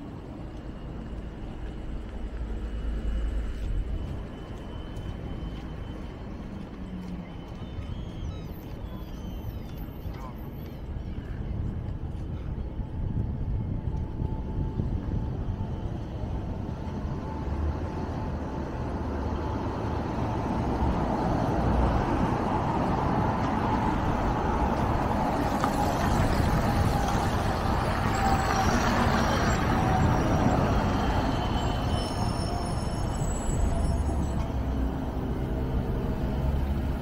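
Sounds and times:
cars and buses driving past: 0.0 - 37.0
tyre noise on wet road: 19.0 - 37.0.

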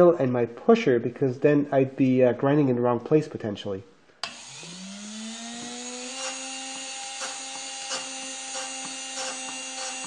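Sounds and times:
rotary tool grinding: 4.2 - 10.0.

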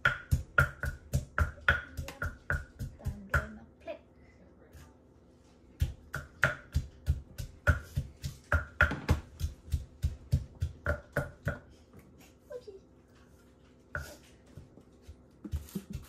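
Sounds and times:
pestle pounding in mortar: 0.0 - 3.6, 5.8 - 11.7.

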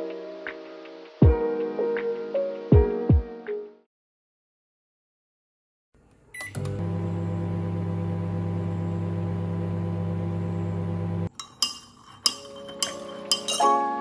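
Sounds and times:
microwave oven humming: 6.3 - 11.3
spoon clinking against mug: 11.3 - 13.8.

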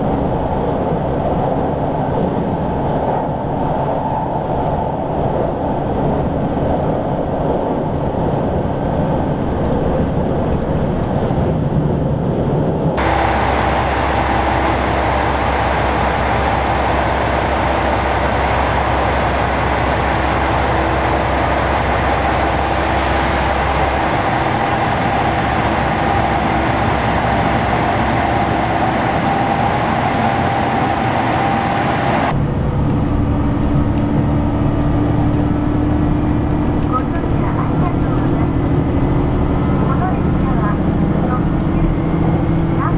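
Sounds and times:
diesel railcar running: 0.0 - 4.1, 4.8 - 42.9
steady low hum: 12.8 - 42.9.

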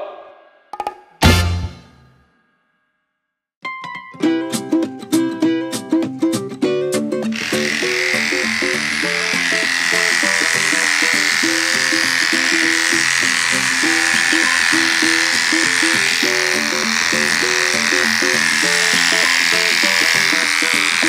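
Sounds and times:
background music melody: 3.6 - 21.0
electric dog clippers humming: 7.3 - 21.0.

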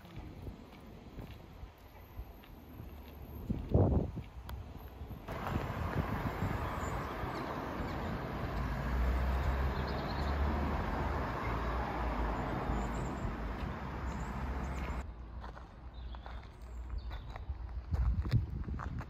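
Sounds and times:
car traffic driving past: 5.3 - 15.0.

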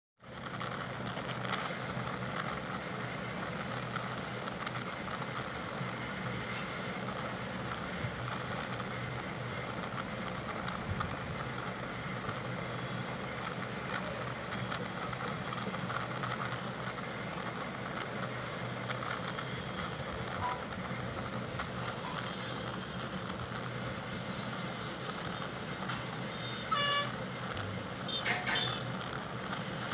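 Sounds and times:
bus engine drone: 0.2 - 29.9
road noise: 0.2 - 29.9
vehicle horn honking: 26.4 - 27.2, 28.1 - 28.9.

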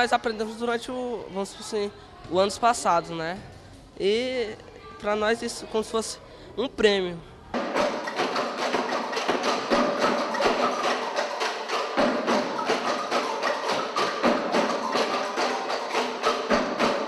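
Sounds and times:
children's wooden percussion: 7.5 - 17.0.

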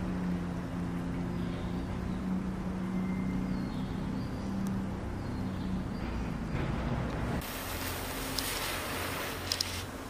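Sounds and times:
low motor drone: 0.0 - 10.0
faint hiss: 7.4 - 10.0.

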